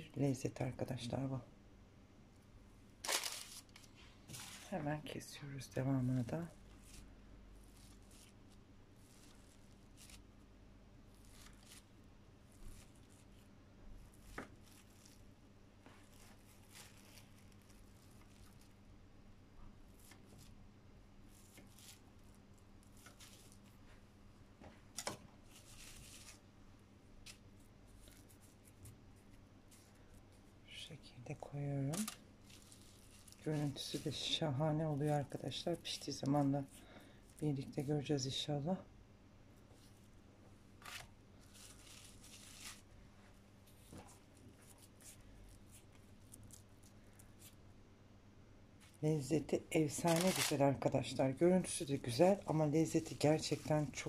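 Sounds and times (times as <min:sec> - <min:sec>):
low steady hum: 0:00.0 - 0:54.0
plastic cling film crinkling: 0:03.0 - 0:05.2, 0:06.2 - 0:10.4, 0:11.1 - 0:18.8, 0:21.2 - 0:24.1, 0:24.9 - 0:26.5, 0:31.8 - 0:37.9, 0:40.8 - 0:47.6, 0:48.8 - 0:50.9
plastic wrap rustling: 0:03.0 - 0:05.2, 0:06.1 - 0:10.4, 0:11.1 - 0:18.8, 0:21.2 - 0:26.5, 0:31.4 - 0:37.9, 0:39.7 - 0:47.6, 0:48.8 - 0:50.8, 0:51.9 - 0:54.0.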